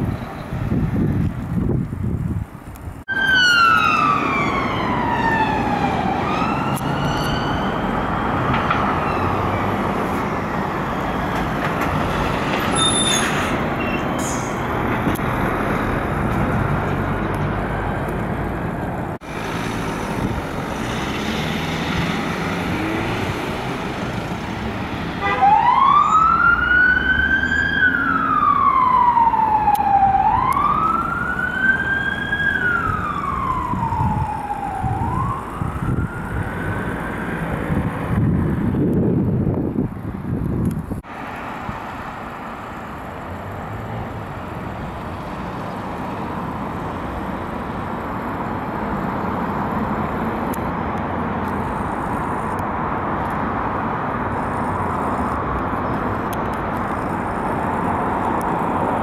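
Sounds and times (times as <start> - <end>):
road traffic noise: 0.0 - 59.0
police sirens wailing: 3.1 - 11.6, 25.2 - 38.4.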